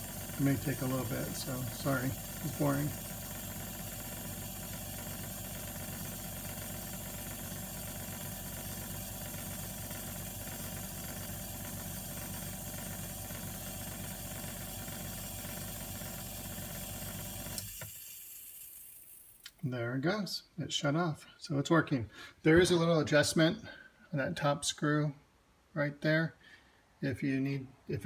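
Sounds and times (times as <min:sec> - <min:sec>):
booster pump humming: 0:00.0 - 0:19.2.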